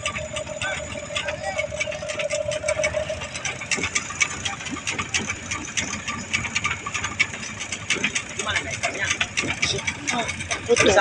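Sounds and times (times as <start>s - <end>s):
steady tone: 0.0s - 6.3s
boat engine clattering: 0.0s - 11.0s.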